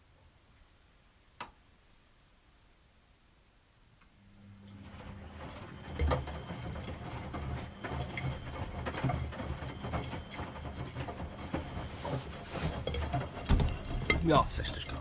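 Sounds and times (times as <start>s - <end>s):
washing machine motor humming: 4.1s - 15.0s
laundry tumbling and sloshing: 4.7s - 15.0s.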